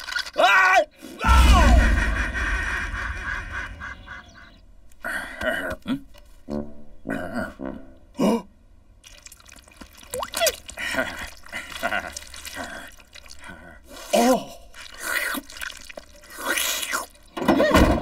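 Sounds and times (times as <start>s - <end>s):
cartoon wet squelching: 9.0s - 17.3s.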